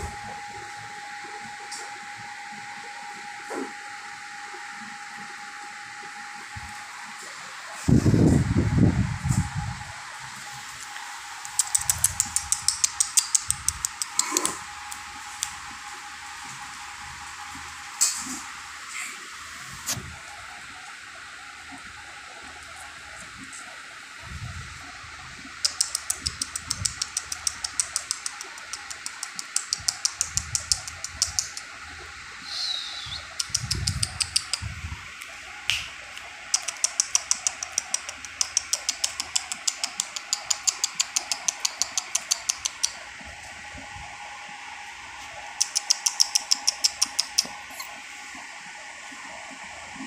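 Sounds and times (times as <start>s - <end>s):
person making rapid clicks: 11.4s - 15.6s, 25.6s - 31.8s, 33.2s - 43.0s, 45.6s - 47.9s.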